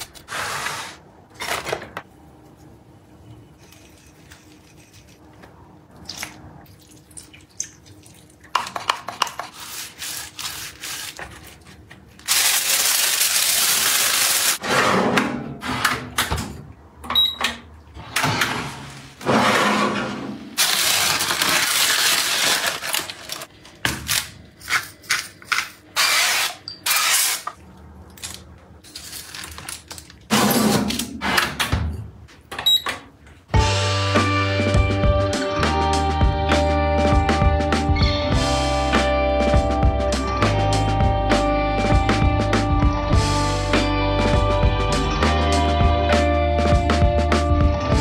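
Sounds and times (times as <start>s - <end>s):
oven control panel beep: 17.1s - 17.6s, 32.6s - 33.0s.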